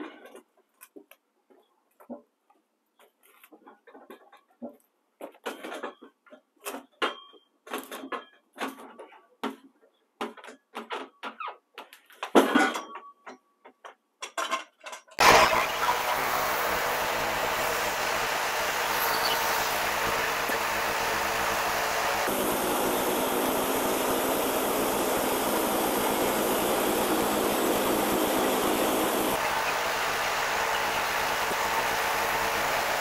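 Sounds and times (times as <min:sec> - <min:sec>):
bandsaw sawmill droning: 0:15.2 - 0:33.0.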